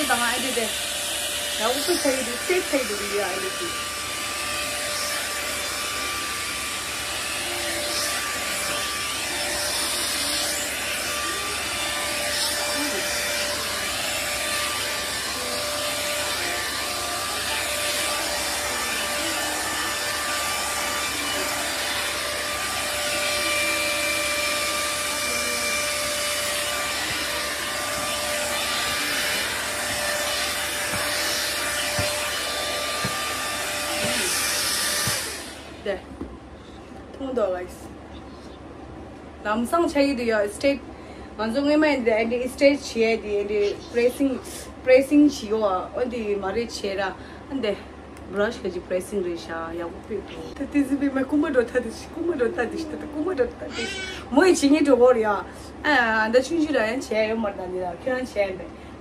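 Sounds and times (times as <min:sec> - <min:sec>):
hot air brush blowing: 0:00.0 - 0:35.9.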